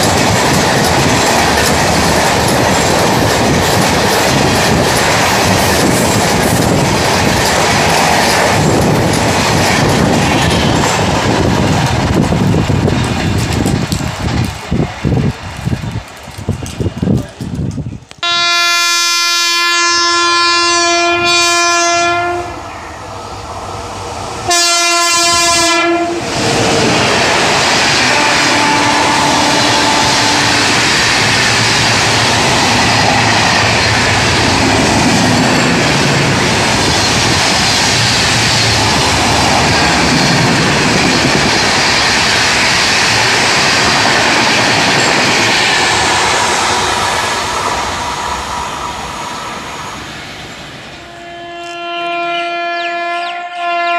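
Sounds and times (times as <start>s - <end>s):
train coaches rushing on rails: 0.0s - 53.9s
locomotive horn blasts: 18.2s - 22.6s, 24.5s - 26.2s, 28.1s - 30.7s, 51.0s - 53.9s.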